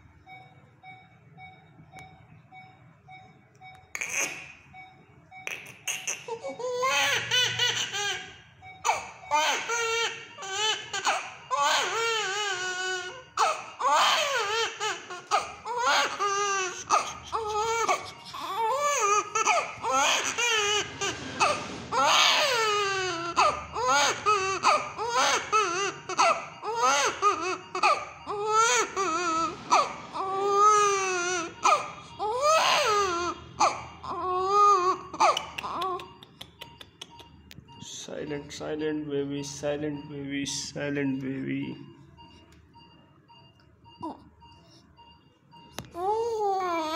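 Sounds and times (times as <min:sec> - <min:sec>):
infant crying: 0:05.9 - 0:36.1, 0:46.0 - 0:46.9.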